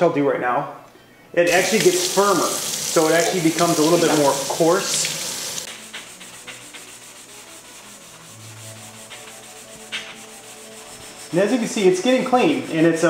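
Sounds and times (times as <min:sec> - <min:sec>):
running tap: 0:01.5 - 0:05.7
sponge scrubbing metal kettle: 0:01.5 - 0:13.0.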